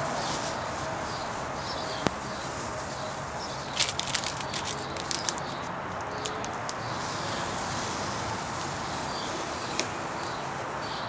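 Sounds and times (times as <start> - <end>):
tape peeling crackles: 0.0 - 10.8.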